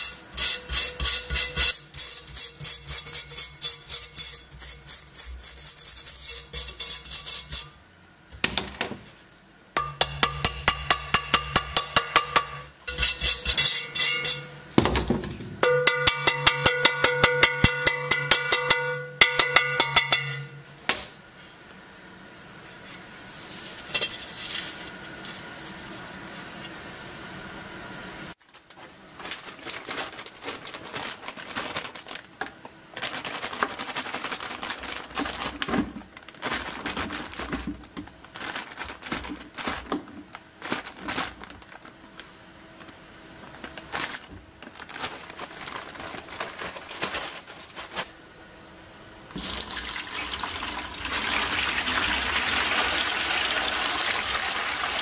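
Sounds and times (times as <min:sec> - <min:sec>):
wire brush scraping metal: 0:00.0 - 0:07.8, 0:12.9 - 0:14.6
hammer tapping ringing steel: 0:15.6 - 0:20.6.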